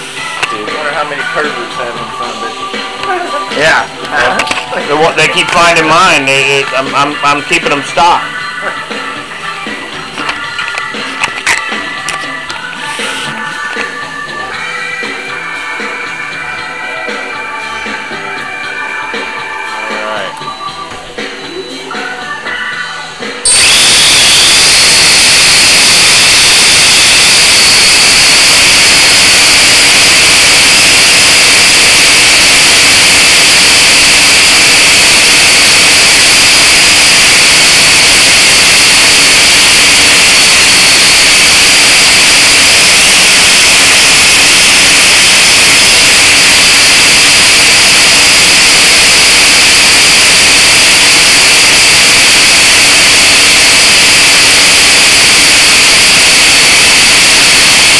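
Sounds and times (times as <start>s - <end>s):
quadcopter propellers whining: 4.2s - 8.1s, 23.4s - 57.9s.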